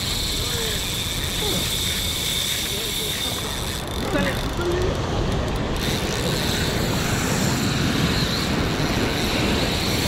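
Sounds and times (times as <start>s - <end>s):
wind on microphone: 4.9s - 10.0s.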